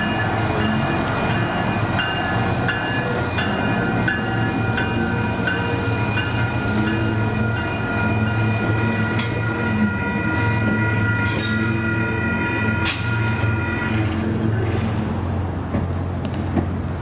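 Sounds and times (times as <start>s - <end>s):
crossing bell ringing: 0.0s - 15.0s
railcar engine humming: 0.0s - 17.0s
hissing squeals: 12.3s - 15.4s.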